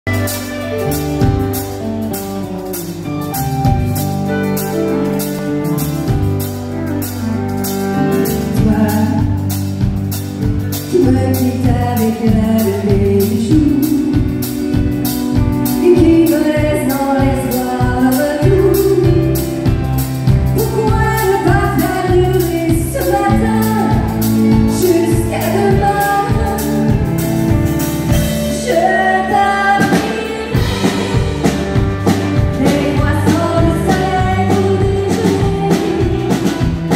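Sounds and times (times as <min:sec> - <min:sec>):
steady drum beat: 0:00.0 - 0:28.8, 0:29.8 - 0:36.9
live country band playing: 0:00.0 - 0:36.9
woman singing into a microphone: 0:08.1 - 0:09.6, 0:10.9 - 0:14.5, 0:15.7 - 0:27.1, 0:28.2 - 0:36.9.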